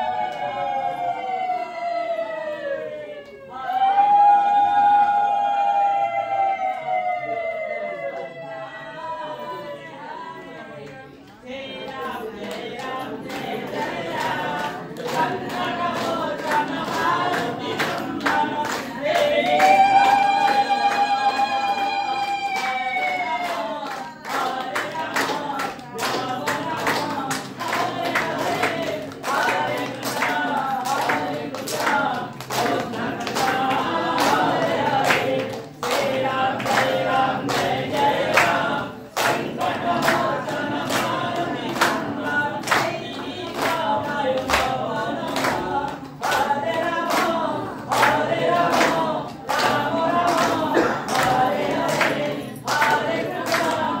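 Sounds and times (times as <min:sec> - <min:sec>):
group singing devotional chant: 0:00.0 - 0:54.0
sharp clapping: 0:11.9 - 0:54.0.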